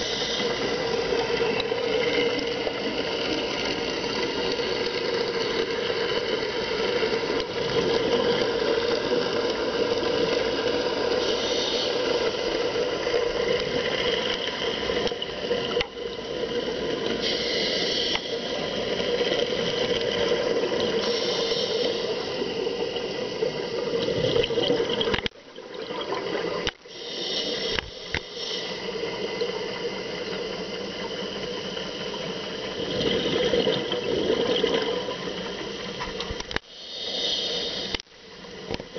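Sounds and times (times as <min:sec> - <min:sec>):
diver regulator breathing: 0:00.0 - 0:01.4, 0:11.2 - 0:12.9, 0:17.2 - 0:18.7, 0:20.9 - 0:22.5, 0:26.9 - 0:29.0, 0:36.6 - 0:38.0
exhaled bubbles hissing: 0:00.0 - 0:38.9.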